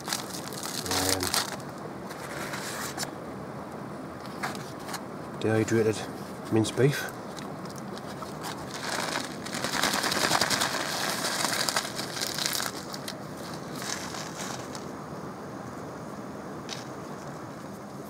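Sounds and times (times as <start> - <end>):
food packaging crinkling: 0.0 - 3.0, 7.3 - 14.8.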